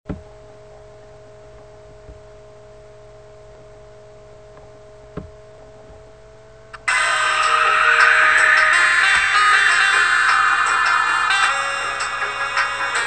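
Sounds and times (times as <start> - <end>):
faint steady hum: 0.1 - 13.0
steady tones: 3.7 - 13.0.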